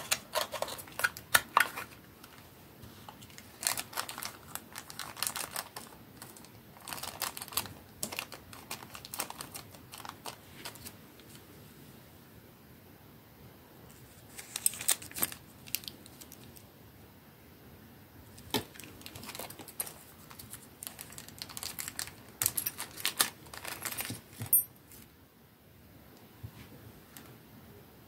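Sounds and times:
plastic bag crinkling: 0.0 - 2.5, 3.1 - 11.0, 14.1 - 16.6, 18.4 - 24.6.

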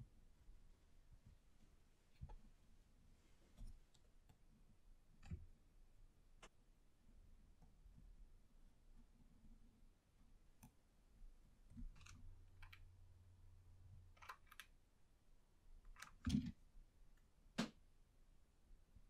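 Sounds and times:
faint low hum: 0.0 - 19.0.

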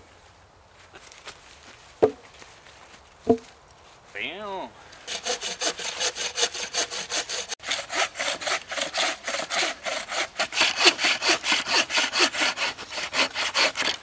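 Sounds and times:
bow saw cutting through log: 5.1 - 14.0.

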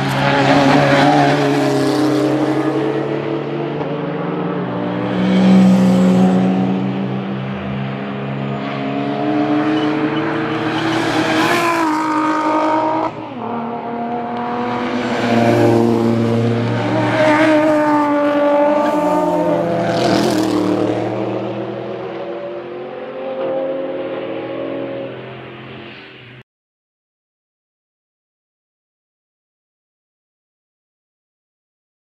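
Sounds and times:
race car engines revving: 0.0 - 26.4.

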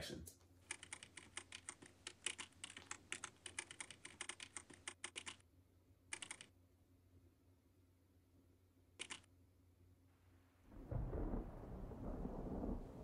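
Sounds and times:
typing on laptop keyboard: 0.6 - 5.4, 6.1 - 6.5, 9.0 - 9.3.

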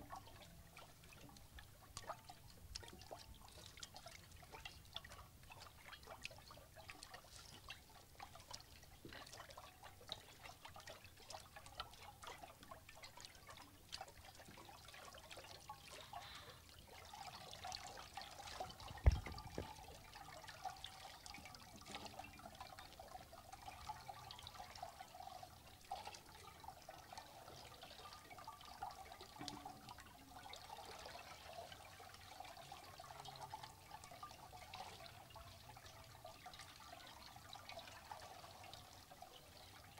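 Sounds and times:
water dripping into bowls: 0.0 - 39.9
low thump: 19.0 - 19.7.

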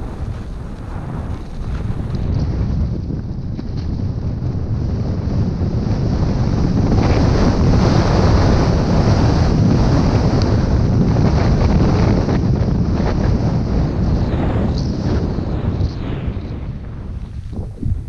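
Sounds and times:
skis scraping on hard snow: 0.0 - 4.1
wind buffeting microphone: 0.0 - 18.0.

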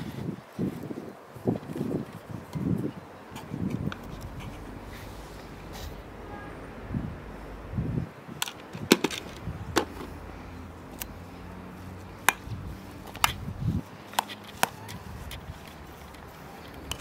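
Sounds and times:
low steady background noise: 0.0 - 17.0.

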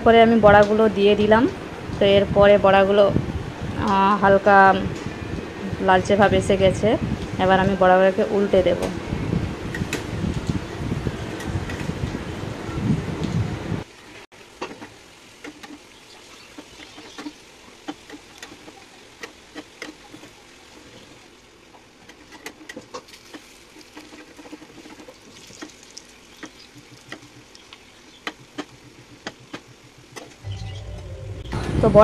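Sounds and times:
fritters sizzling in hot oil: 13.8 - 30.2
oil popping: 21.8 - 30.3.

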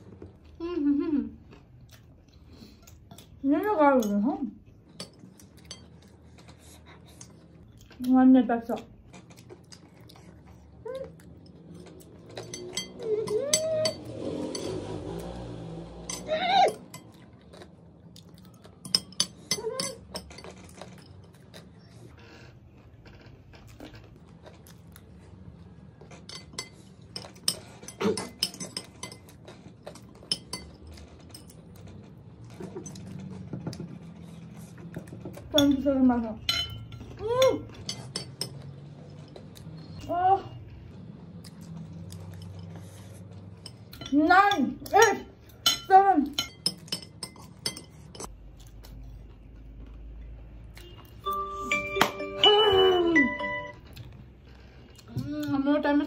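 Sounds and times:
metal spoons clinking on plates: 4.9 - 6.2, 11.4 - 14.8, 16.0 - 17.2, 18.8 - 21.6, 26.1 - 31.9, 35.4 - 39.5, 43.6 - 48.3
steady chiming tones: 51.2 - 53.9.

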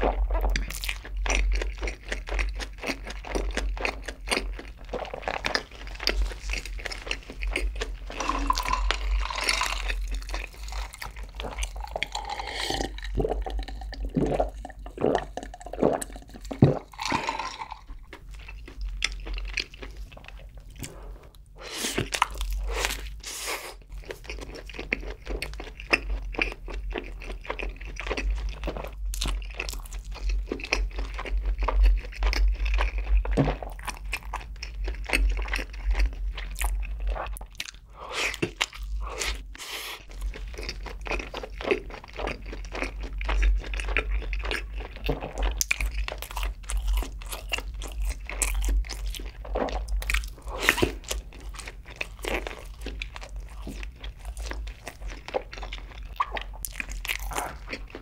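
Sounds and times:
person chewing bun: 0.0 - 58.0.

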